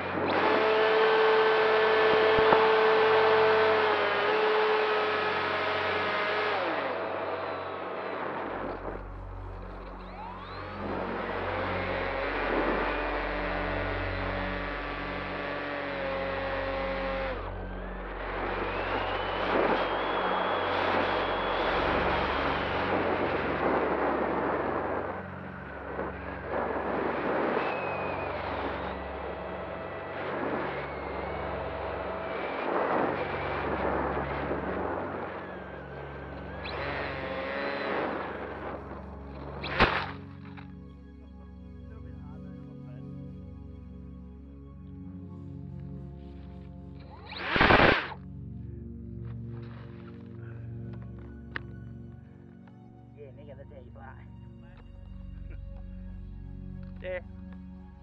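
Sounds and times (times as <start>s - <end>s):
wind noise: 0.0s - 40.6s, 47.1s - 48.2s
electric motor and propeller whining: 0.0s - 40.8s.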